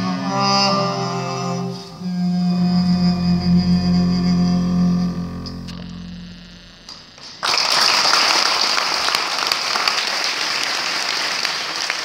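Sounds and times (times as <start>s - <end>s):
acoustic guitar and double bass: 0.0s - 7.2s
audience applause: 6.9s - 12.0s.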